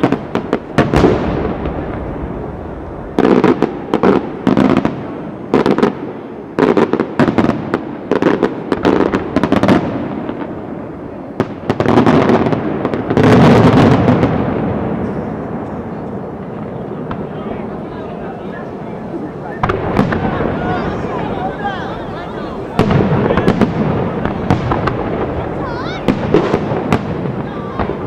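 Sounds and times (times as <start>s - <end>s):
firework shells bursting: 18.6s - 28.0s.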